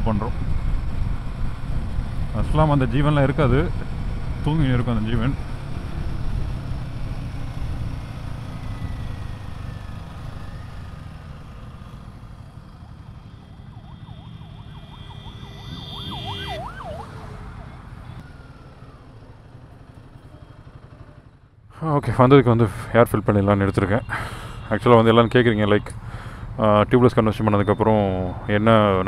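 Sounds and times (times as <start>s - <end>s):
motorcycle engine rumble: 0.0s - 29.0s
warbling siren-like tone: 12.4s - 19.4s.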